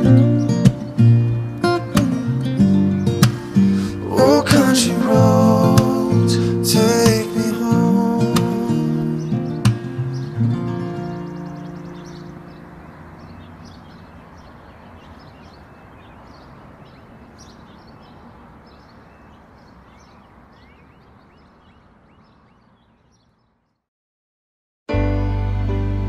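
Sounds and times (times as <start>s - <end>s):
song music: 0.0s - 12.8s, 24.9s - 26.0s
small birds chirping: 0.0s - 23.9s.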